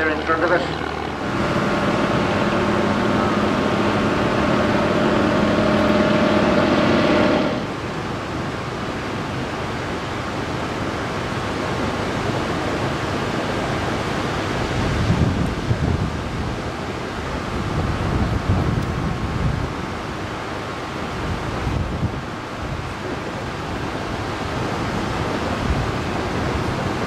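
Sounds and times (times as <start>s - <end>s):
propeller plane engine droning: 0.0s - 27.0s
surf: 0.0s - 27.0s
wind on microphone: 14.5s - 20.4s, 21.1s - 27.0s.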